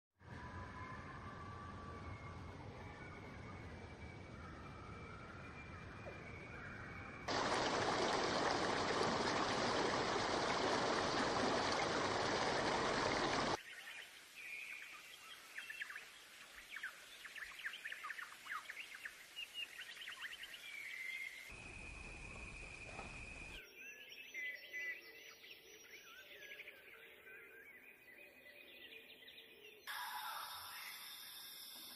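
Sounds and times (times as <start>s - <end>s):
running water rushing: 7.3s - 13.6s.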